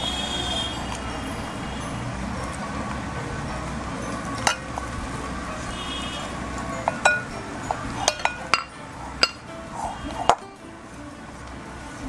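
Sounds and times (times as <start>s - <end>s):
metal spoon clinking in steel bowl: 4.0s - 4.9s, 6.7s - 9.5s.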